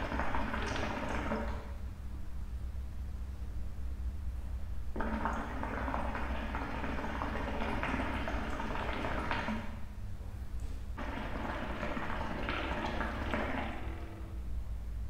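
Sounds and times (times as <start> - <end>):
water bubbling in hookah: 0.0 - 1.8, 4.9 - 10.0, 10.7 - 14.6
low steady hum: 0.0 - 15.0.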